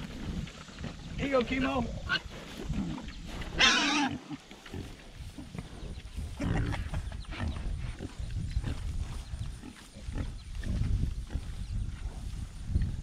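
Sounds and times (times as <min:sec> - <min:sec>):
pigs grunting: 0:01.8 - 0:12.4
piglets squealing: 0:03.6 - 0:04.2.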